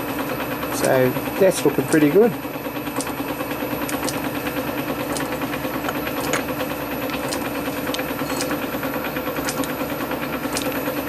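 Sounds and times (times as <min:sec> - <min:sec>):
machine motor humming: 0:00.0 - 0:11.0
metal parts clicking: 0:07.1 - 0:08.6.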